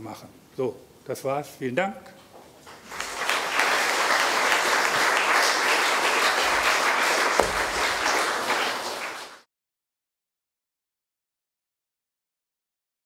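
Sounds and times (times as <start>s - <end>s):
audience applauding: 2.7s - 9.4s
single knock: 6.4s - 6.6s, 7.4s - 8.2s.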